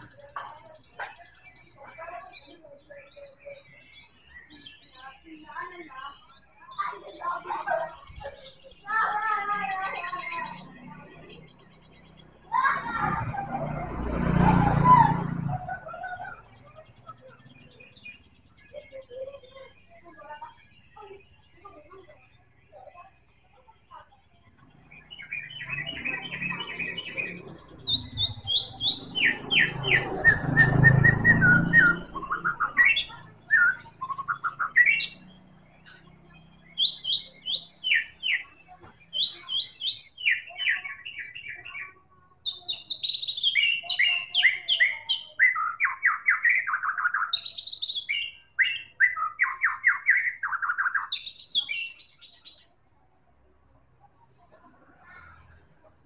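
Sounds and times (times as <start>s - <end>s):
bird singing whistles and trills: 24.4s - 52.6s.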